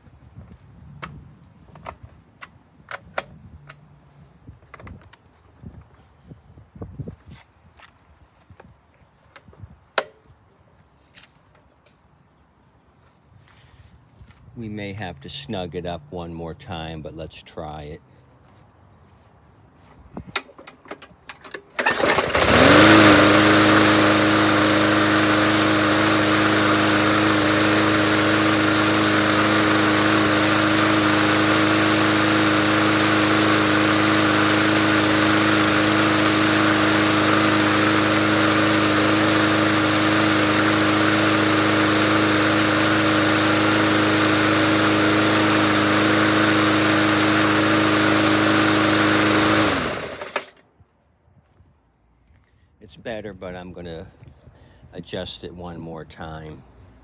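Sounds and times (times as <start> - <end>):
lawn mower engine starting: 20.3 - 50.7.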